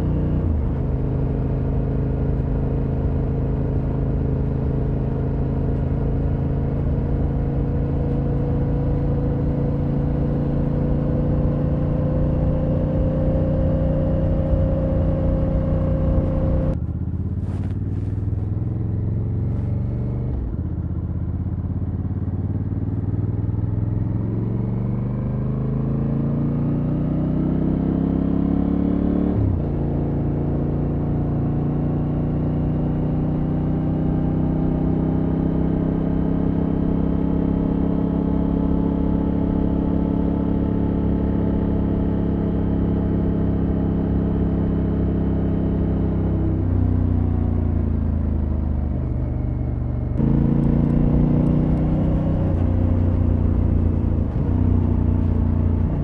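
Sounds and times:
motorcycle engine exhaust revving: 50.2 - 56.0.

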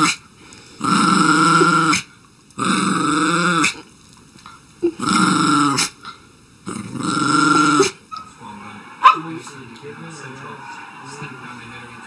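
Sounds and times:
small dog growling: 0.8 - 3.9, 4.8 - 6.0, 6.6 - 8.0.

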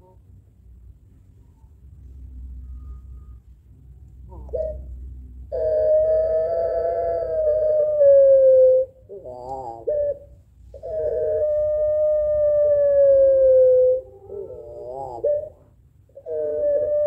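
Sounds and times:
dove calling: 4.2 - 17.0.

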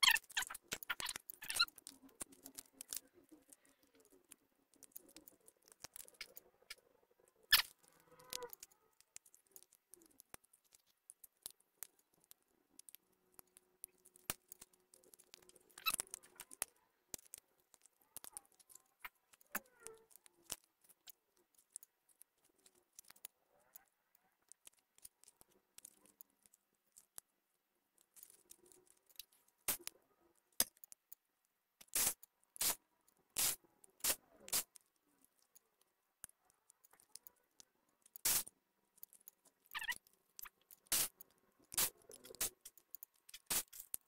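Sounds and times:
laptop parts clicking: 7.5 - 27.3, 33.4 - 44.0.

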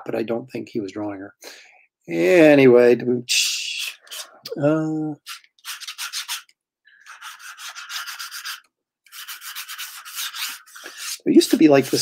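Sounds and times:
pencil scratching on paper: 5.6 - 12.0.

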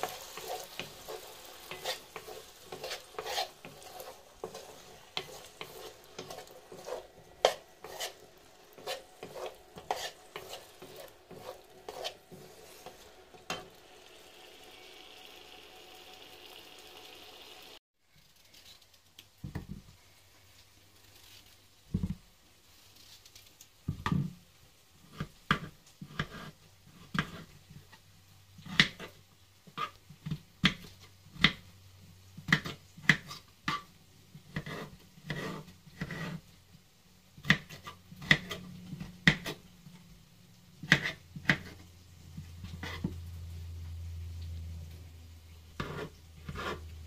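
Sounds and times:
knife chopping on cutting board: 1.7 - 8.2, 8.8 - 13.7, 37.4 - 38.6, 40.8 - 41.8, 45.8 - 46.8.

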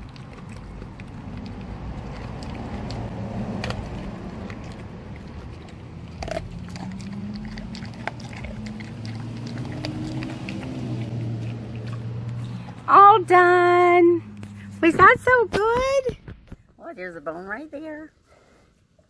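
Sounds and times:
dog crunching bone: 0.0 - 12.9.

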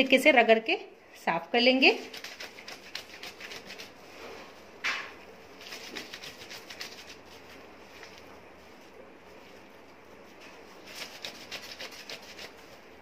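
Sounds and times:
wet cloth rubbed by hand: 2.0 - 4.7, 5.5 - 13.0.

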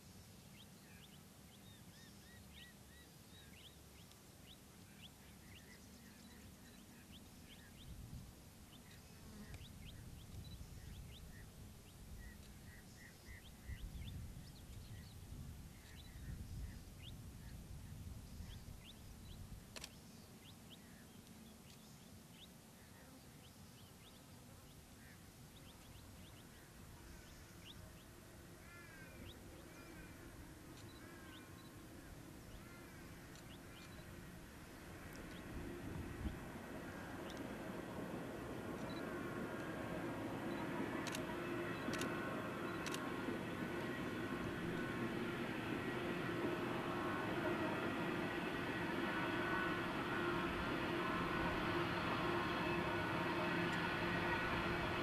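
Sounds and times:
birds chirping: 18.3 - 55.0.

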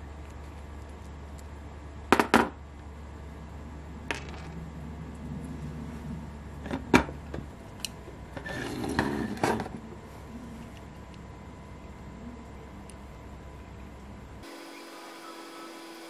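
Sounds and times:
steady low hum: 0.0 - 16.0
rustling and scraping: 8.3 - 10.8.

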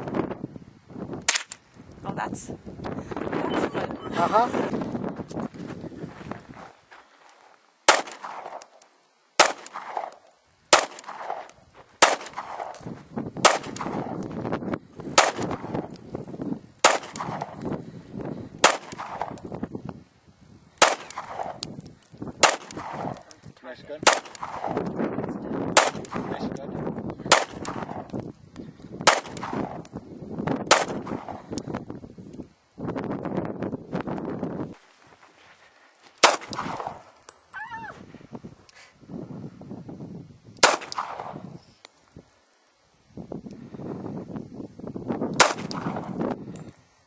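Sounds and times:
handgun shots with echo: 7.9 - 8.7, 9.4 - 12.8, 22.4 - 23.3, 24.0 - 24.8, 25.8 - 26.3, 40.6 - 41.4, 45.4 - 46.1.

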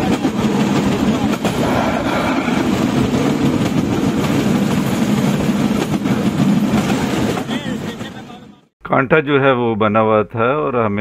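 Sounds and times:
wheels rumbling on rails: 0.0 - 8.6.

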